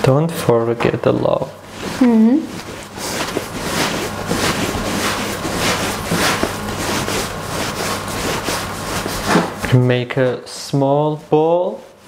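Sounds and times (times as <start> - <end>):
hands rolling bread dough: 1.6 - 9.8.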